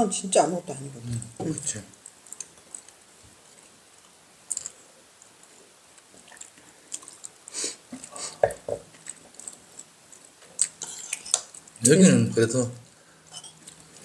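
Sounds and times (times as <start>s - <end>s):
chewing: 1.5s - 11.9s, 13.2s - 14.0s.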